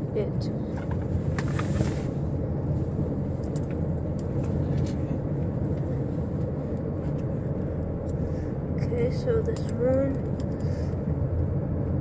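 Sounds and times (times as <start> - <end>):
low rumble inside car: 0.0 - 12.0.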